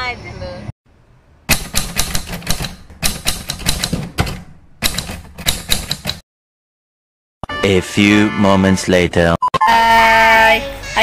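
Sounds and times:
typewriter keys clacking: 1.6 - 6.2.

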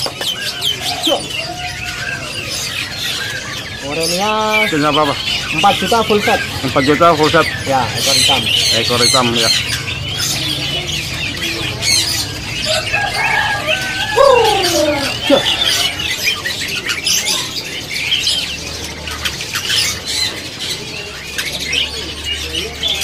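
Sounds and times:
songbirds chirping and whistling: 0.0 - 23.0.

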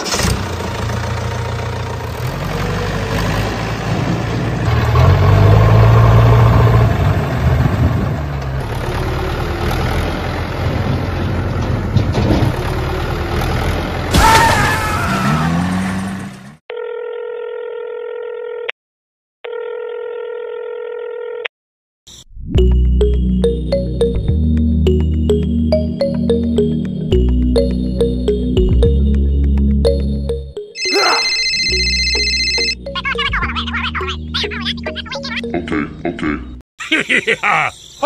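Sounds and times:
tractor engine revving: 0.0 - 14.2, 15.1 - 16.6
long electronic beeps: 30.8 - 32.8.

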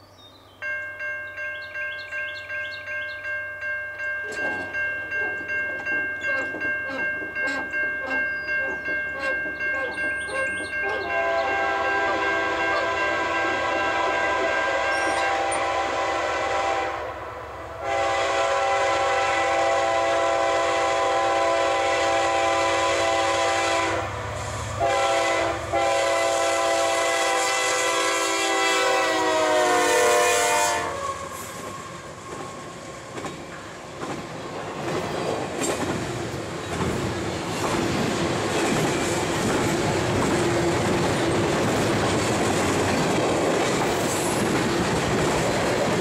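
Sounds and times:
crossing bell ringing: 0.6 - 15.8
locomotive air horn blasts: 10.8 - 17.2, 17.8 - 31.9.

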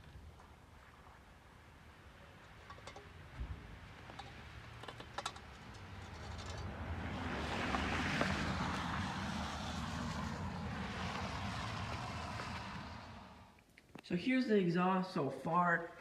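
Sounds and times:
vehicle passing: 3.2 - 13.6.

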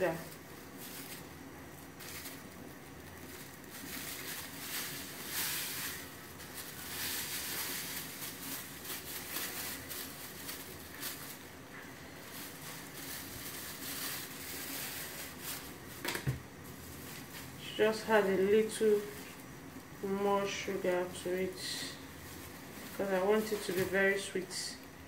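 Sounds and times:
plastic bag crinkling: 0.0 - 25.0
sugar pouring into bowl: 0.3 - 16.0.

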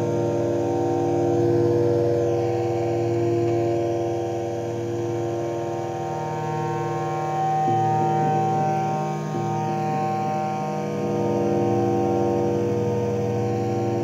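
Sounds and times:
droning synthesizer chord: 0.0 - 14.0.

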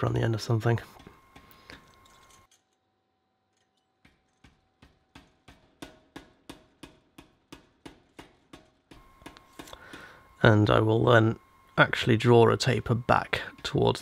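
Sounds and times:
power hammer striking steel: 4.0 - 10.1.

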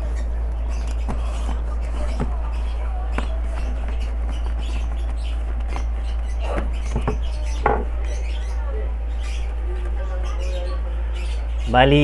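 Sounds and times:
tarpaulin rustling: 0.0 - 8.0
steady low hum: 0.0 - 12.0.

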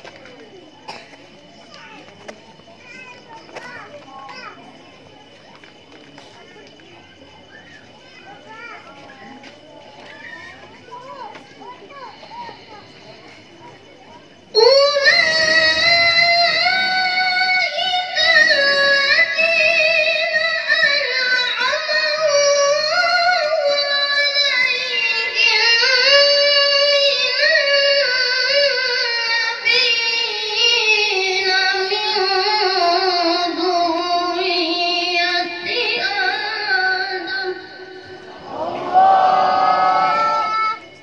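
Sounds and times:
boy reciting melodically: 1.6 - 4.9, 14.2 - 38.2.

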